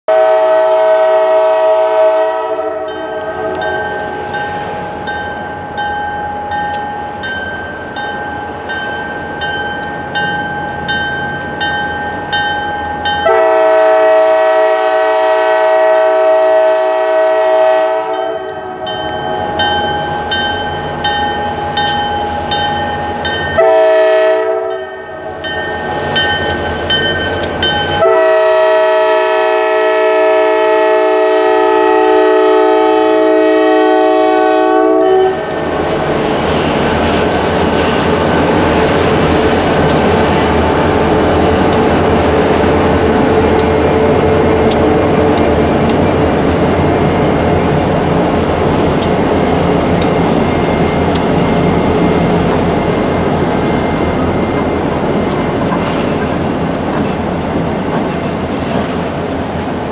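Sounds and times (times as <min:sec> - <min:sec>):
train air horn blasts: 0:00.1 - 0:04.1, 0:13.2 - 0:19.0, 0:23.5 - 0:25.4, 0:28.0 - 0:35.6
diesel locomotive engines rumbling: 0:00.1 - 0:59.9.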